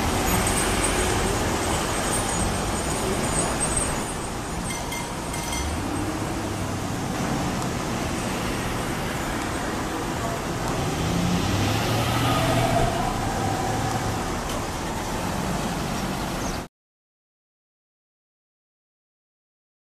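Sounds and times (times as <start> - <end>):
engines and tyres on road: 0.0 - 16.7
vehicle passing close by: 5.6 - 16.7.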